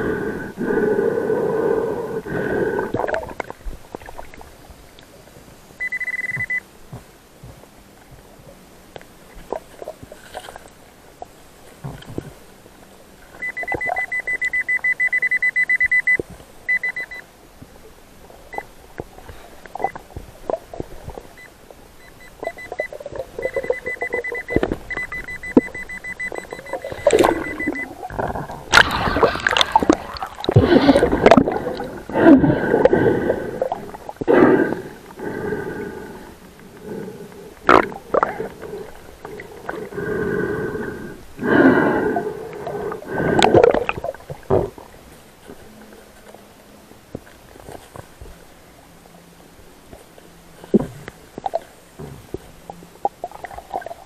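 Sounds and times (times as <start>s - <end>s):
churning bubbling water: 2.3s - 4.5s, 22.4s - 36.2s, 37.6s - 45.0s, 52.3s - 54.0s
metal detector beeping: 5.8s - 6.6s, 13.4s - 17.2s, 21.4s - 28.1s.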